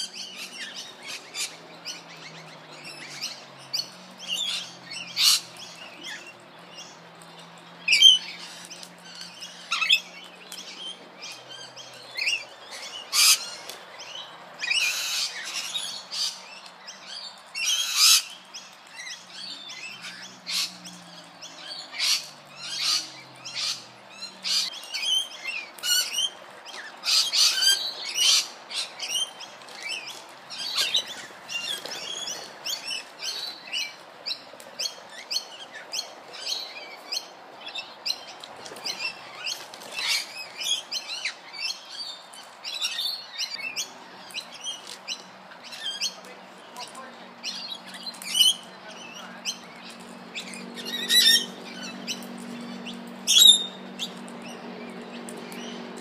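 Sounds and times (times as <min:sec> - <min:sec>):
parrots chirping and squawking: 0:00.0 - 0:56.0.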